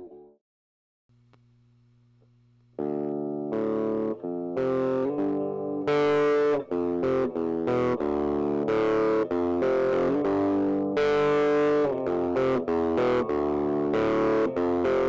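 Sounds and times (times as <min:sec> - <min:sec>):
guitar and synthesizer music: 0:00.0 - 0:00.4, 0:02.8 - 0:15.0
faint low hum: 0:01.1 - 0:03.0.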